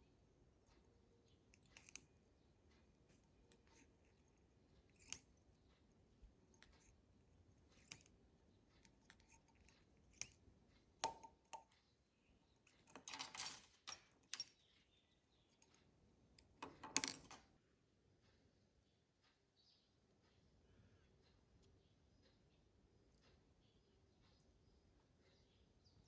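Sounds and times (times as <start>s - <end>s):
hand tools clicking and rustling: 12.8s - 14.7s.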